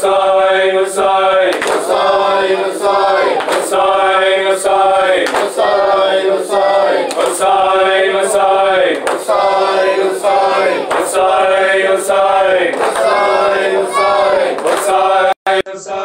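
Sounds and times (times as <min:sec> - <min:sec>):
men chanting in unison: 0:00.0 - 0:16.0
person reciting on a microphone: 0:00.0 - 0:16.0
chest-beating slaps: 0:01.5 - 0:03.9, 0:04.7 - 0:05.9, 0:06.9 - 0:07.6, 0:08.9 - 0:11.6, 0:12.6 - 0:13.4, 0:14.0 - 0:15.1.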